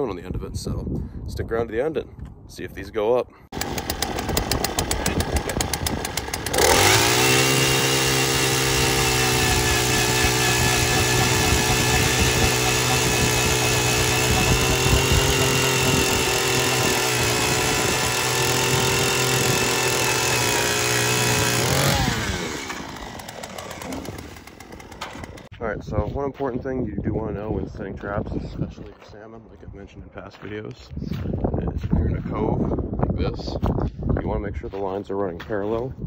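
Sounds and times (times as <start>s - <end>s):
ice auger motor drilling: 3.5s - 25.5s.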